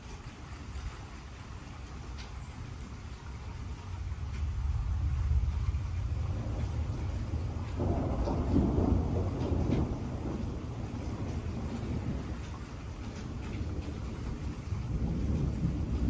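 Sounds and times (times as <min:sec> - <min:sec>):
falling rain: 0:00.0 - 0:16.0
raindrop ticks: 0:00.0 - 0:16.0
rolling thunder: 0:03.7 - 0:16.0.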